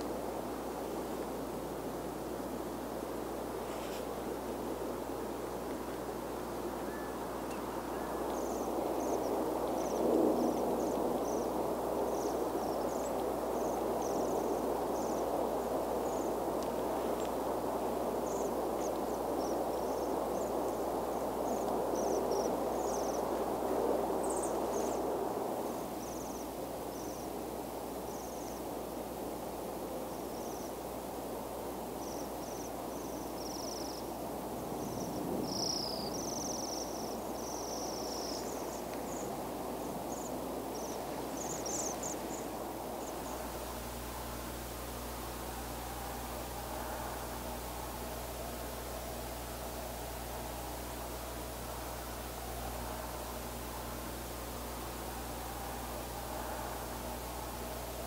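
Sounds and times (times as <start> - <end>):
low background rush: 0.0 - 58.0
birds trilling: 40.1 - 58.0.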